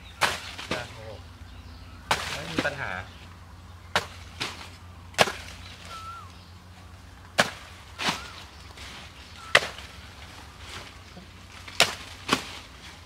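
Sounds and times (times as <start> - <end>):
bird chirping: 0.0 - 4.4, 5.4 - 11.3
sword chopping plant trunk: 0.2 - 0.9, 2.1 - 2.8, 3.9 - 5.9, 7.3 - 8.4, 9.5 - 9.9, 11.6 - 12.7.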